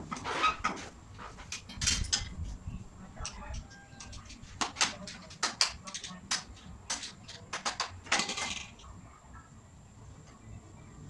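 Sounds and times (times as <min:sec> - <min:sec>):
sharp clicks and knocks: 0:03.2 - 0:08.9.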